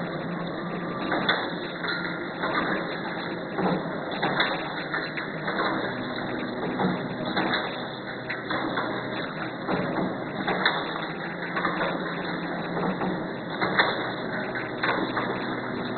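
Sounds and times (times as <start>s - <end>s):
packing machine clattering: 0.0s - 15.9s
machine knocks: 6.6s - 15.6s.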